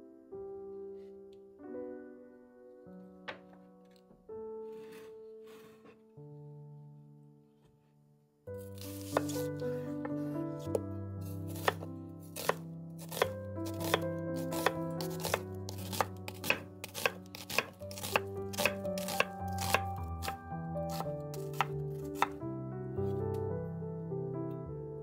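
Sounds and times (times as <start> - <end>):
soft background piano music: 0.0 - 25.0
knife chopping on cutting board: 8.8 - 10.8, 11.5 - 22.4.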